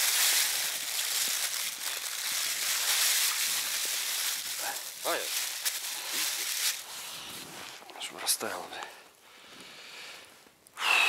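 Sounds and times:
plastic bag rustling: 0:00.0 - 0:07.8.

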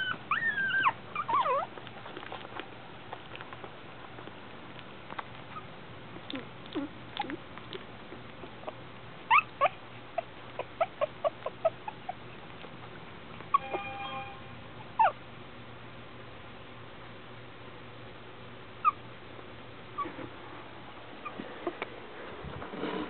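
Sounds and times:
puppies whimpering and squeaking: 0:00.0 - 0:01.8, 0:08.6 - 0:12.4, 0:13.5 - 0:13.9, 0:14.9 - 0:15.2, 0:18.8 - 0:19.0, 0:20.0 - 0:20.4, 0:21.2 - 0:22.0.

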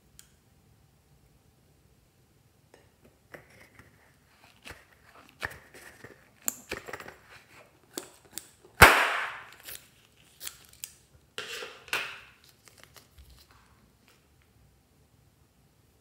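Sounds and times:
balloon popping: 0:08.8 - 0:09.6.

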